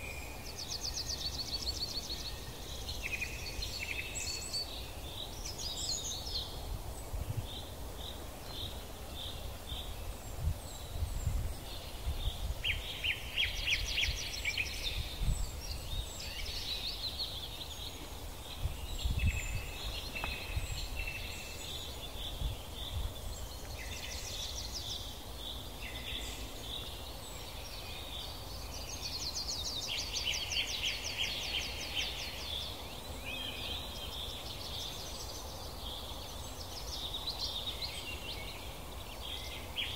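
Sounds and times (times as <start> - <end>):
songbirds calling and singing: 0.0 - 39.9
low rumble on microphone: 17.8 - 23.6.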